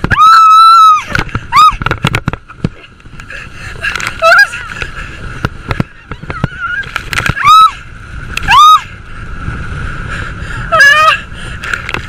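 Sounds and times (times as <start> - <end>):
high-pitched cries: 0.1 - 1.8, 6.5 - 7.8, 10.7 - 11.3.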